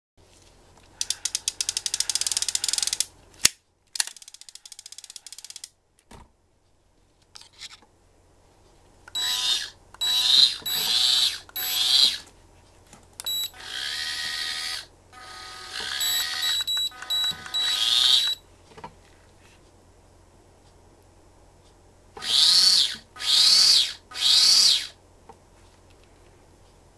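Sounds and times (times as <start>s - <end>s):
fishing reel ratcheting clicks: 1.0s - 3.1s, 4.0s - 5.7s
short electronic beeps: 9.2s - 11.0s, 11.6s - 12.1s, 13.3s - 13.6s, 15.9s - 18.4s
electric reel motor running: 9.2s - 12.2s, 13.6s - 18.4s.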